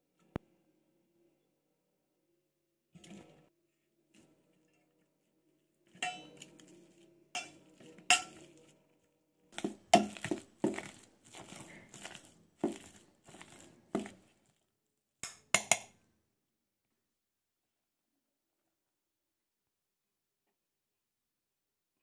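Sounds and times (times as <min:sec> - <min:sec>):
potato masher clinking against bowl: 0:07.4 - 0:08.4, 0:09.6 - 0:14.2.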